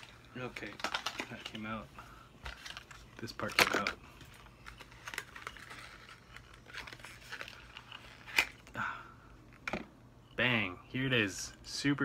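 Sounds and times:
packaging rustling and crinkling: 0:00.0 - 0:08.7.

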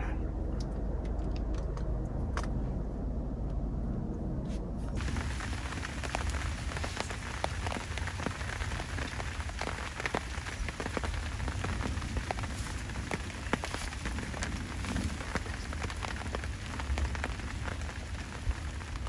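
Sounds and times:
low rumble: 0:00.0 - 0:19.0
rain drops ticking: 0:05.0 - 0:19.0
rain hiss: 0:05.0 - 0:19.0.

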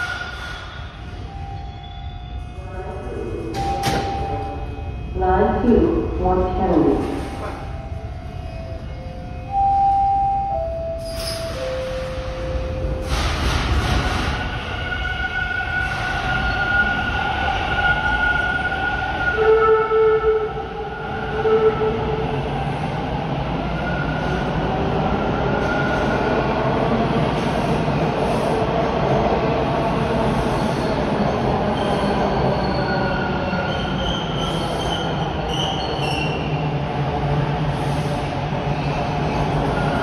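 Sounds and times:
subway train rumble: 0:00.0 - 0:40.0.

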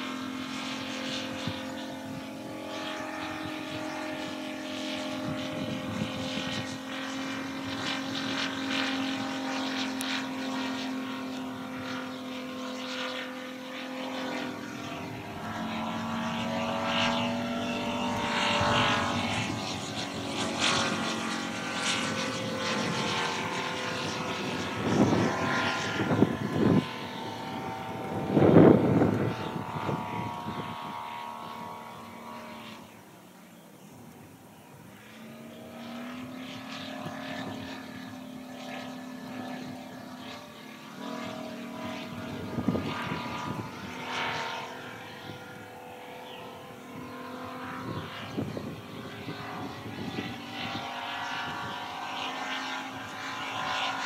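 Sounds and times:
propeller biplane engine droning: 0:00.0 - 0:54.0.

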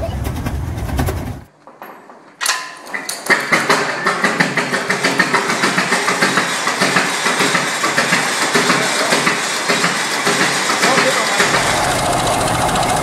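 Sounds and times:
tractor engine running: 0:04.3 - 0:13.0.

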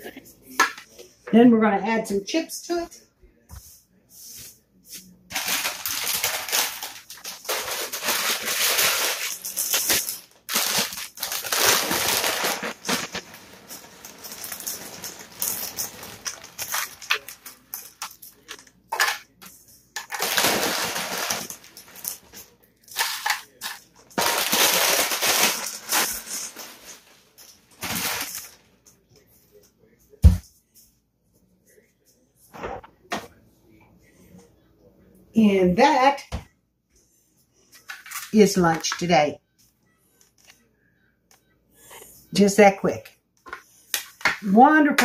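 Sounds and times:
chip bag rustling and crackling: 0:05.3 - 0:19.4, 0:20.0 - 0:28.6.

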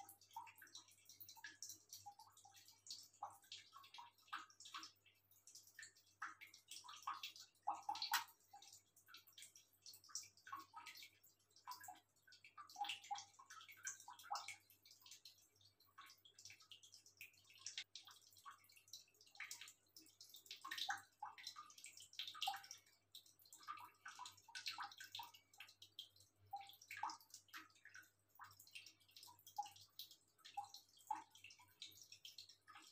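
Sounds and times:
cats lapping water: 0:00.0 - 0:32.9
water dripping: 0:00.0 - 0:32.9.

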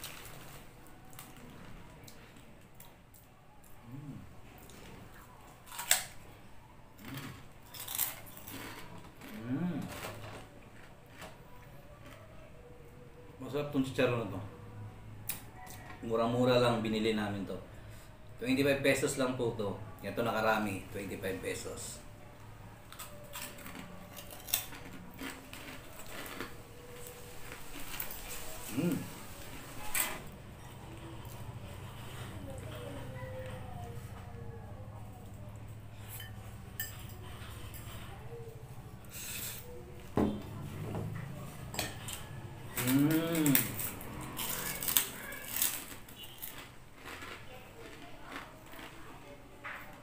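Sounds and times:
person humming mmm: 0:03.8 - 0:04.4, 0:09.3 - 0:10.0, 0:28.4 - 0:29.4, 0:42.7 - 0:43.9
chewing crunchy pork cracklings: 0:07.0 - 0:12.2, 0:22.8 - 0:29.2, 0:42.0 - 0:50.0.

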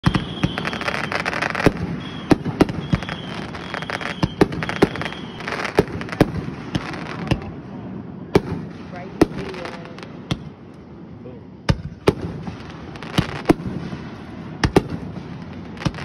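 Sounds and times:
firework shells bursting: 0:00.0 - 0:07.5, 0:11.7 - 0:16.0
firework crackling: 0:00.0 - 0:10.8, 0:11.7 - 0:16.0.

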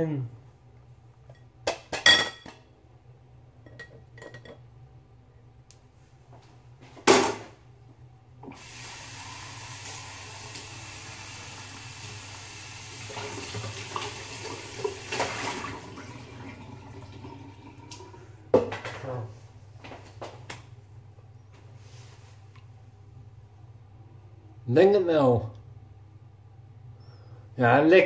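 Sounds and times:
dishes clinking: 0:01.3 - 0:02.7, 0:03.6 - 0:04.7
kitchen tap running: 0:08.4 - 0:18.7.

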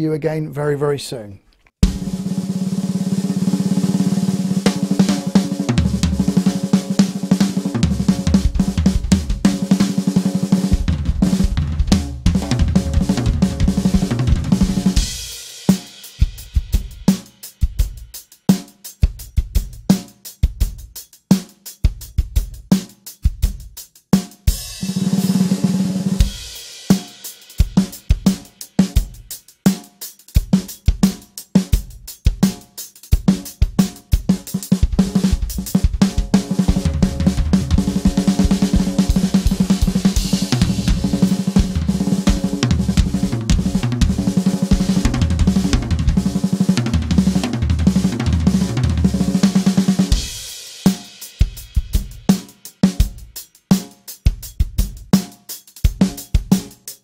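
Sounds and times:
bass drum: 0:01.8 - 0:15.4, 0:16.2 - 0:18.1, 0:33.2 - 0:50.5, 0:51.4 - 0:52.3, 0:53.0 - 0:53.4, 0:54.3 - 0:55.1
snare drum rolls and strokes: 0:01.8 - 0:20.2, 0:21.3 - 0:57.0
cymbals: 0:35.0 - 0:46.6, 0:49.5 - 0:53.9.

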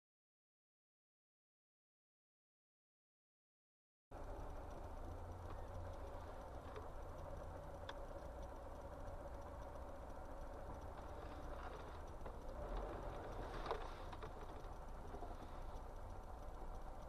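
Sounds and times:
low traffic rumble: 0:04.1 - 0:17.0.

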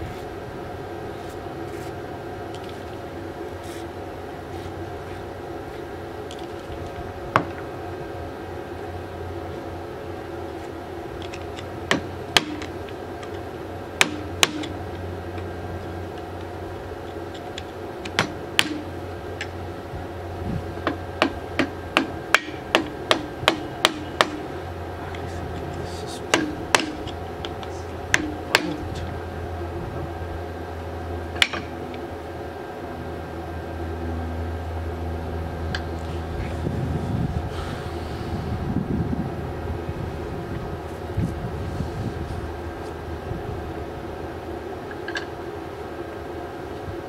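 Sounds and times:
hammer striking metal pulley: 0:11.9 - 0:12.7, 0:14.0 - 0:14.8, 0:18.1 - 0:18.9, 0:20.9 - 0:24.5, 0:26.3 - 0:27.2, 0:28.1 - 0:28.8.

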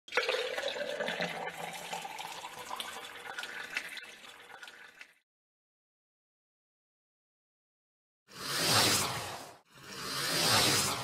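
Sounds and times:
coffee pouring into a cup: 0:00.1 - 0:05.2.

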